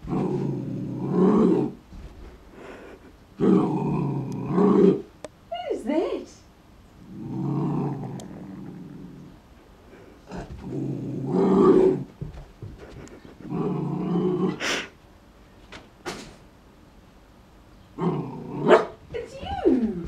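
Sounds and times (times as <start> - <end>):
puppy growling: 0.0 - 1.8, 2.6 - 5.1, 7.0 - 12.2, 12.9 - 14.9, 18.0 - 20.0.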